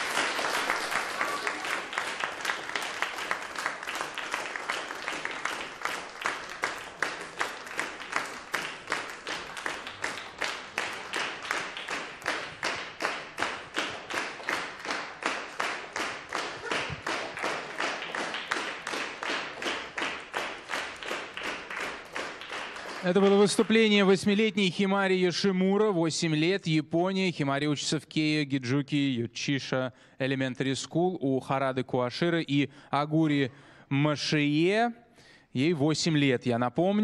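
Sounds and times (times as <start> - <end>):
audience clapping in unison: 0.0 - 24.4.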